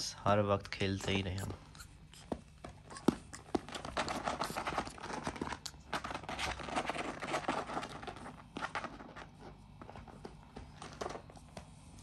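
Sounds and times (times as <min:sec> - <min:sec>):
beaks nibbling toy: 0:00.6 - 0:06.6
parrot claws tapping and scratching: 0:01.0 - 0:11.5.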